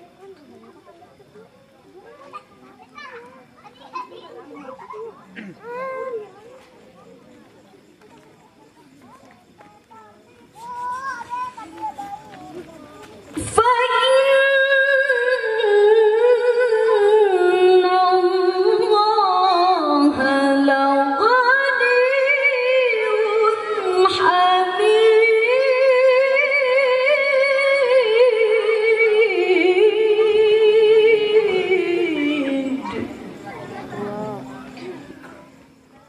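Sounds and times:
woman reciting melodically: 13.4s - 34.9s.

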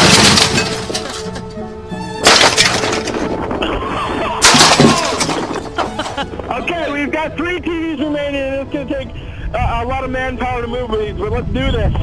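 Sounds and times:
junk smashing onto asphalt: 0.0s - 1.6s, 2.2s - 6.7s
background music: 0.0s - 11.5s.

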